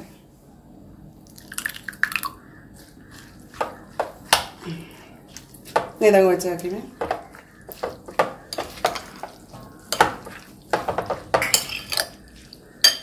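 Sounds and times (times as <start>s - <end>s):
metal spoon scraping glass bowl: 11.4s - 13.0s.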